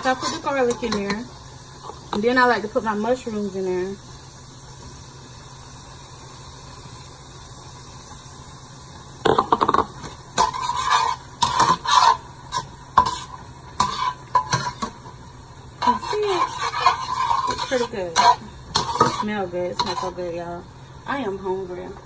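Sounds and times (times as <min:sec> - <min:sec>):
metal fork scraping a pan: 0:00.0 - 0:01.2, 0:10.4 - 0:15.0, 0:15.8 - 0:20.3
mushrooms sizzling in a frying pan: 0:00.0 - 0:22.0.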